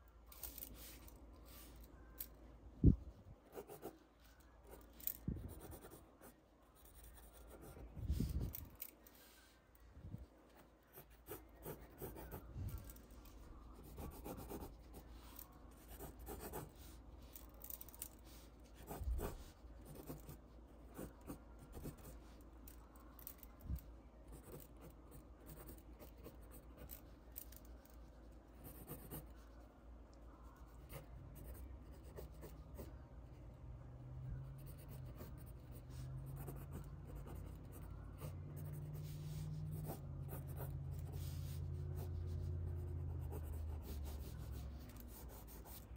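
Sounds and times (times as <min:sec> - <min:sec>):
low steady hum: 0:00.0 - 0:45.9
pencil sketching on paper: 0:03.5 - 0:04.0, 0:05.4 - 0:09.4, 0:10.9 - 0:17.3, 0:18.2 - 0:22.3, 0:28.0 - 0:29.5, 0:34.6 - 0:45.9.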